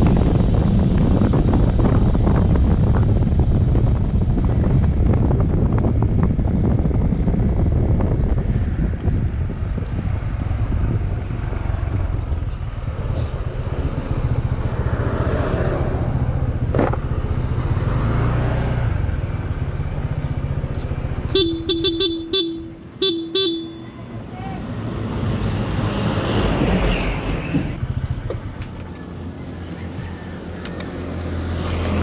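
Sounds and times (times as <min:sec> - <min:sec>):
road rumble: 0:00.0 - 0:32.0
wind noise: 0:00.0 - 0:32.0
horn short toots: 0:21.3 - 0:24.6.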